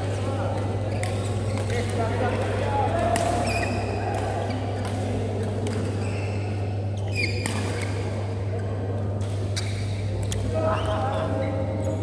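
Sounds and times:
rackets striking shuttlecock: 0.0 - 8.1, 9.1 - 10.6
court shoes squeaking: 0.0 - 8.3, 9.1 - 12.0.

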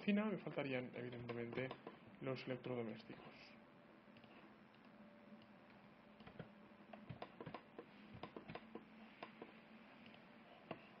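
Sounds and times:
low steady hum: 0.0 - 11.0
mouse and keyboard clicks: 1.0 - 2.0, 4.2 - 10.9.

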